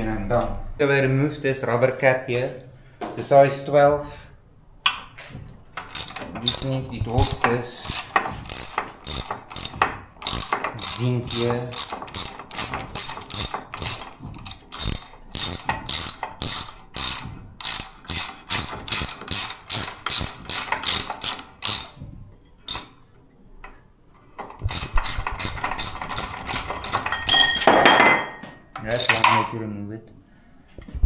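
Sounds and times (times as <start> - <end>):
ratchet spanner clicking: 5.8 - 22.0, 22.7 - 23.0, 24.5 - 27.4, 28.8 - 29.4.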